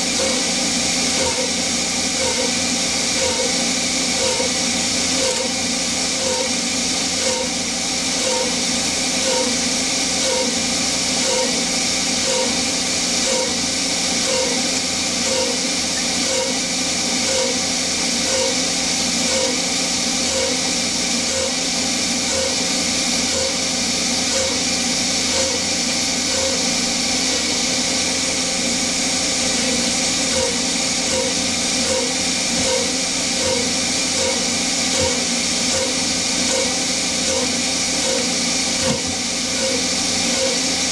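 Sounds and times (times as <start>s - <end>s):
spindle and compressor hum: 0.0s - 40.9s
short blips: 22.3s - 22.7s, 24.3s - 24.7s, 25.3s - 26.7s.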